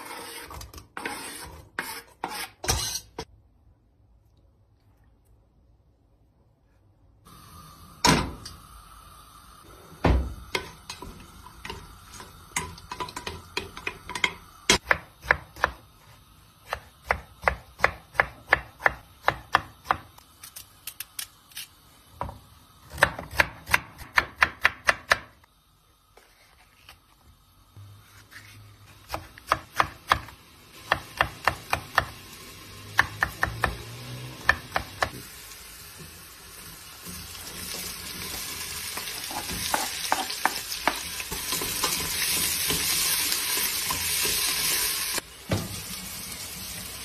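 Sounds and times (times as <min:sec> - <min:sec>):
knife chopping on wooden board: 0:14.8 - 0:15.8.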